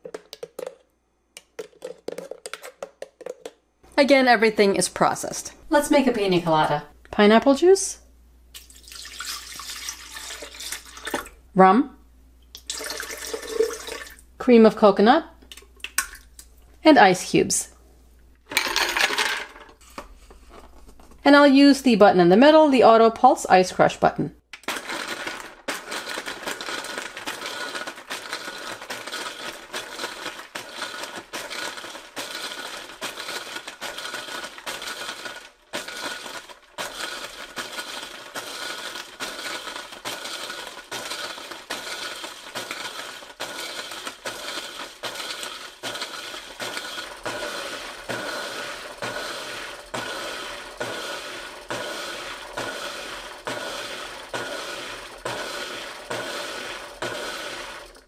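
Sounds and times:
blender crushing ice: 0:24.6 - 0:58.0.

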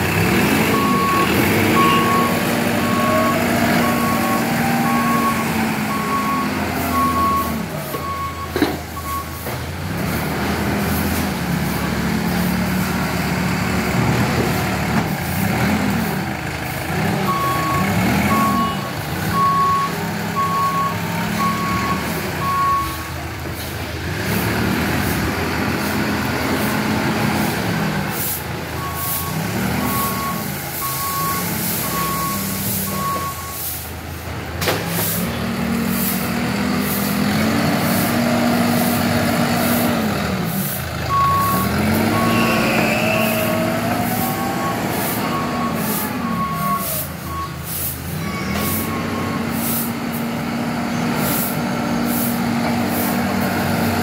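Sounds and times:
diesel engine revving: 0:00.0 - 0:54.0
reversing alarm beeps: 0:00.7 - 0:09.5, 0:17.3 - 0:23.0, 0:28.8 - 0:33.7, 0:41.1 - 0:47.6.

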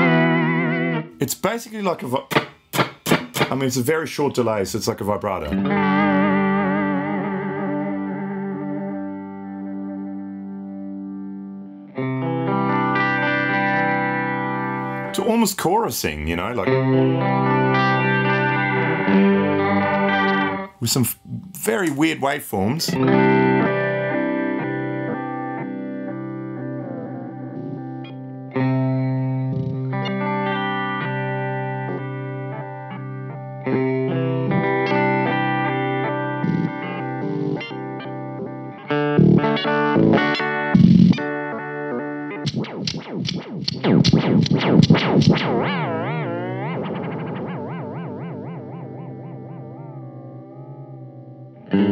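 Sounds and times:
electric guitar chord with warble: 0:05.6 - 0:15.1, 0:16.7 - 0:20.7, 0:23.0 - 0:42.8, 0:43.9 - 0:51.9.

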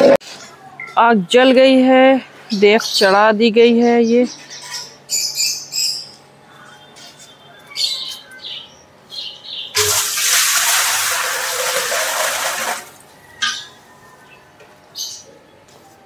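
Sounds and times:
water pouring into metal pot: 0:09.8 - 0:13.0.

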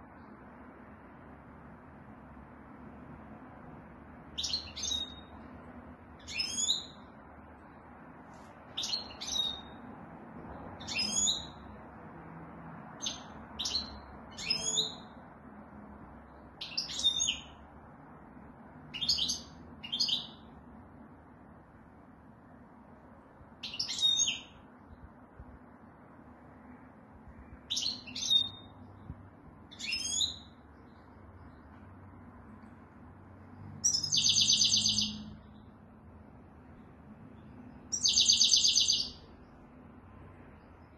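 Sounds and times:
faint steady background noise: 0:00.0 - 0:40.9
goldfinch chirping calls: 0:04.4 - 0:05.3, 0:06.2 - 0:07.0, 0:08.8 - 0:09.8, 0:10.8 - 0:11.6, 0:13.0 - 0:15.0, 0:16.6 - 0:17.5, 0:23.6 - 0:24.5, 0:27.7 - 0:28.7, 0:29.7 - 0:30.5, 0:33.8 - 0:35.3, 0:37.9 - 0:39.2.

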